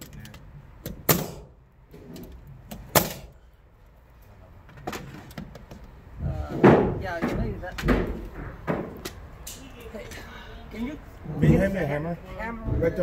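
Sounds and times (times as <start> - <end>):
nail gun firing: 0.9 - 1.5, 2.8 - 3.4.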